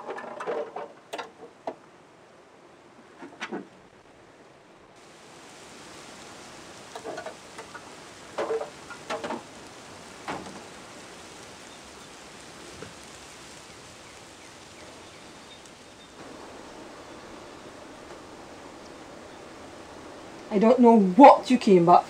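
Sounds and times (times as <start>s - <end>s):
knocks and clatters: 0.0s - 1.8s, 6.9s - 9.5s, 10.2s - 10.7s
outdoor ambient hiss: 0.0s - 22.0s.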